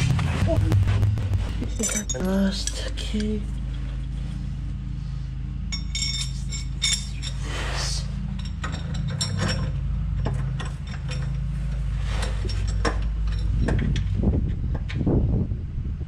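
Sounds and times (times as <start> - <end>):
steady low hum: 0.0 - 16.0
metal-on-metal clinks: 1.6 - 3.4, 5.7 - 7.5, 8.3 - 11.5.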